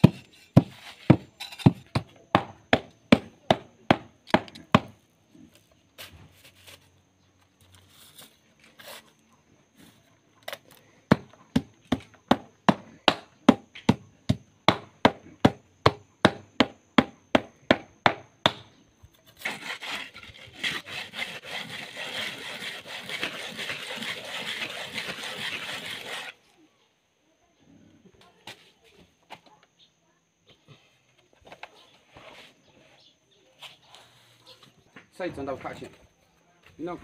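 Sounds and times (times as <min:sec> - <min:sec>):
wooden board scraping: 0:19.2 - 0:26.4.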